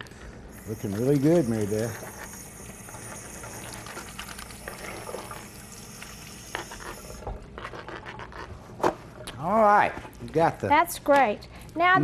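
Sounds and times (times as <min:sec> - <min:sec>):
pot bubbling: 0:00.0 - 0:09.4.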